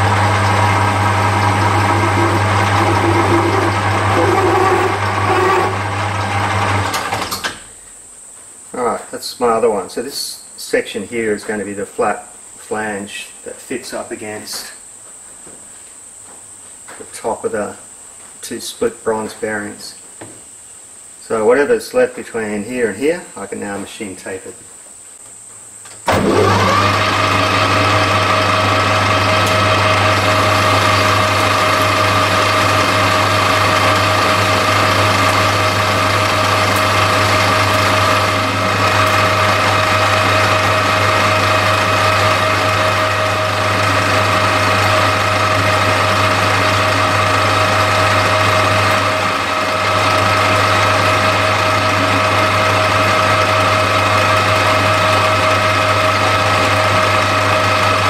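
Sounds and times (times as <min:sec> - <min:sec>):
metal lathe humming and whining: 0:00.0 - 0:07.2, 0:26.1 - 0:58.0.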